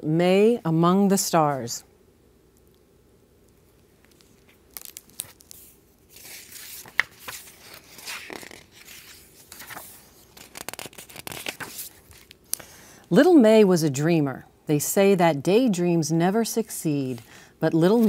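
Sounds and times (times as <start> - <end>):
book pages rustling: 4.0 - 12.4.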